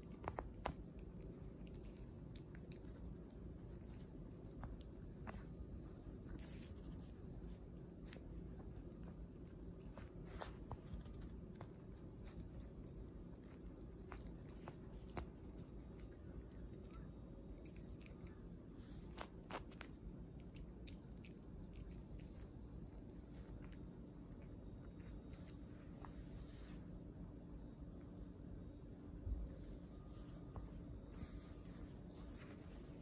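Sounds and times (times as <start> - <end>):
dog chewing: 9.2 - 18.3.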